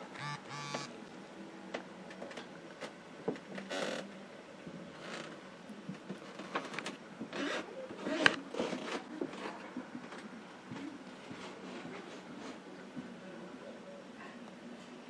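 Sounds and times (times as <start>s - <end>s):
phone rubbing scrapes: 0.2s - 0.9s.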